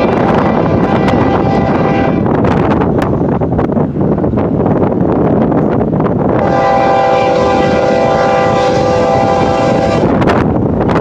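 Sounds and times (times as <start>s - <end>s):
locomotive air horn blast: 0.0s - 2.3s, 6.4s - 10.2s
wind buffeting microphone: 0.0s - 11.0s.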